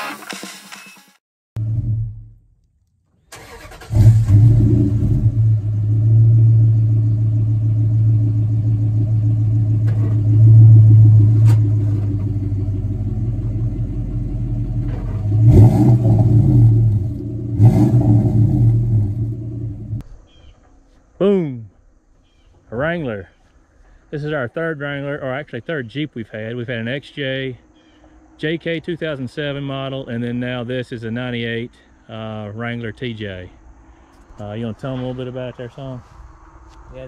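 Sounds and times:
engine cranking and idling: 0:03.3 - 0:20.0.

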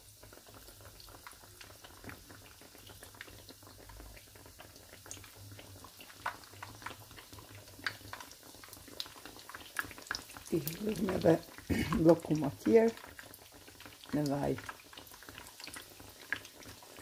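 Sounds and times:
hot oil sizzling and crackling: 0:00.0 - 0:17.0
oil popping: 0:04.6 - 0:17.0.

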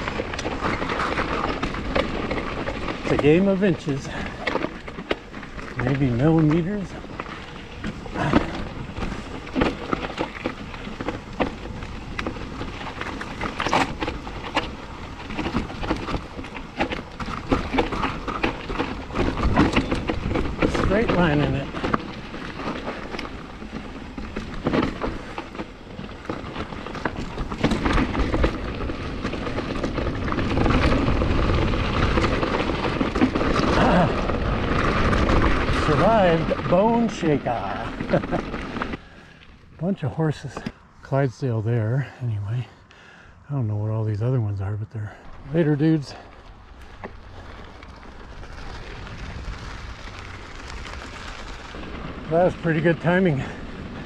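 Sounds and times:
mountain bike rattling over rock: 0:00.0 - 0:40.8, 0:45.0 - 0:54.0
wind rumble on microphone: 0:45.3 - 0:54.0.

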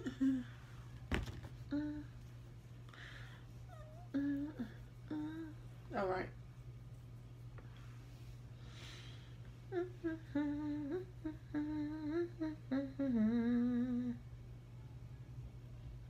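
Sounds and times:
woman humming: 0:00.0 - 0:00.6, 0:01.6 - 0:02.4, 0:03.7 - 0:05.8, 0:09.7 - 0:14.2
low background hum: 0:00.0 - 0:16.0.

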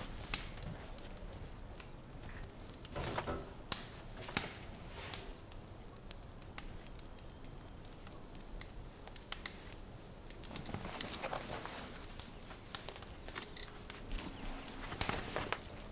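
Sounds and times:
fur and hide rustling: 0:10.5 - 0:15.9.

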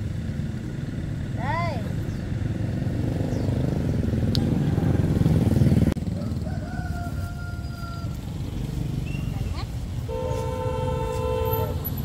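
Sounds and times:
traffic engine rumble: 0:00.0 - 0:12.0
rooster crowing: 0:06.0 - 0:08.4.

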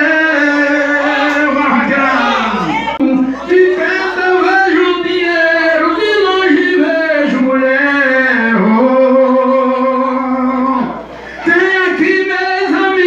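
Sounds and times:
man singing long held notes: 0:00.0 - 0:02.4.

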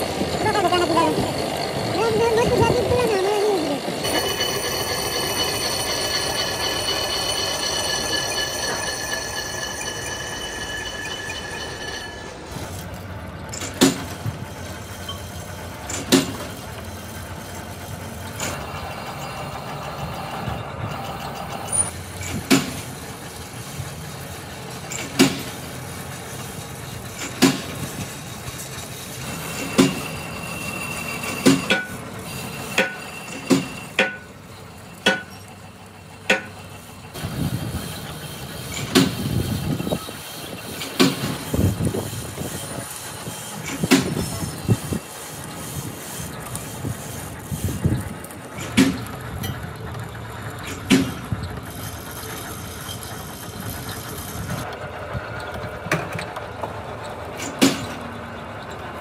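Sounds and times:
steady mechanical rumble: 0:00.0 - 0:59.0
hammer striking metal: 0:04.0 - 0:12.8, 0:29.4 - 0:32.0, 0:32.6 - 0:34.4, 0:35.0 - 0:35.4, 0:36.3 - 0:36.6.

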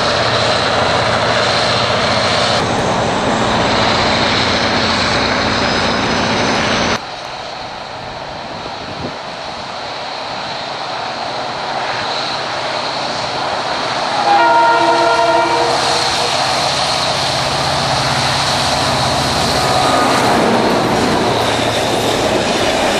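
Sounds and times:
diesel locomotive running under load: 0:00.0 - 0:22.9
train horn blast: 0:14.1 - 0:16.6.

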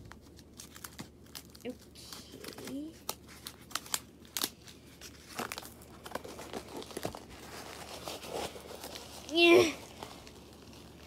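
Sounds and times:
plastic and bubble wrap crinkling: 0:00.0 - 0:11.0.

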